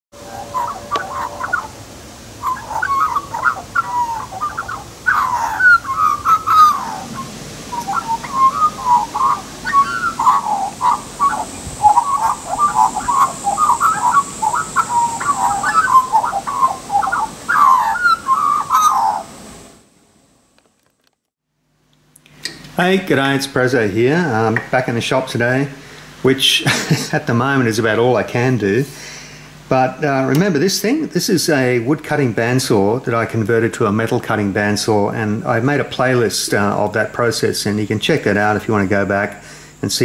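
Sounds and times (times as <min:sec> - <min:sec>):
magpie singing fluting notes: 0:00.2 - 0:19.4.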